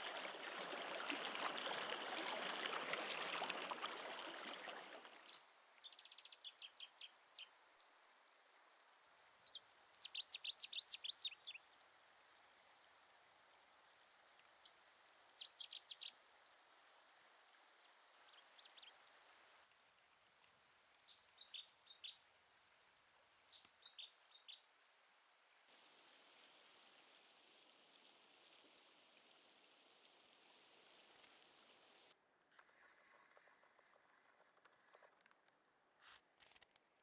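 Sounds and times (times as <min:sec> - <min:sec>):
faint hiss: 0:00.0 - 0:02.3, 0:03.8 - 0:32.8
bird chirping: 0:09.5 - 0:11.6, 0:15.4 - 0:16.1.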